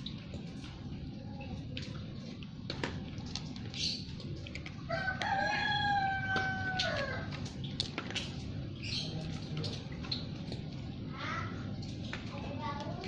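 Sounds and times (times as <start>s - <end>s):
rooster crowing: 4.9s - 7.3s.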